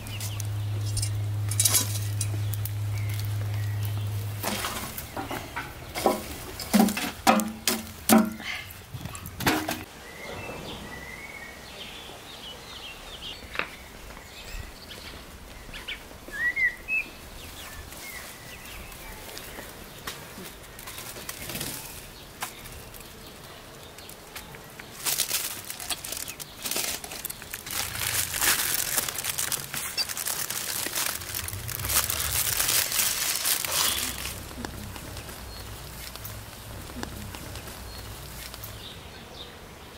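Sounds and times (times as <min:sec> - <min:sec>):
small birds chirping: 0:00.0 - 0:06.8, 0:08.4 - 0:39.9
aluminium foil crinkling: 0:00.0 - 0:08.6, 0:20.6 - 0:38.8
metal clanks on grill: 0:00.9 - 0:02.6, 0:04.4 - 0:08.5.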